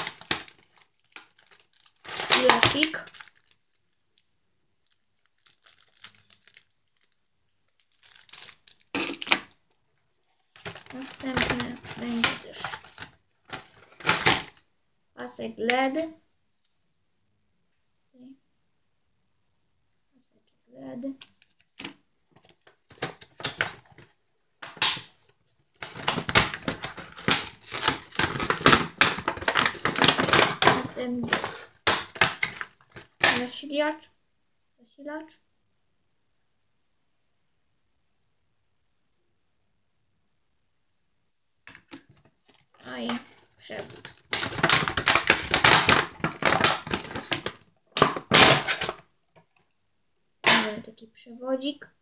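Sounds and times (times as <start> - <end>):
plastic packaging crinkling: 0.0 - 9.6, 10.4 - 14.6, 21.2 - 33.6, 41.7 - 49.0.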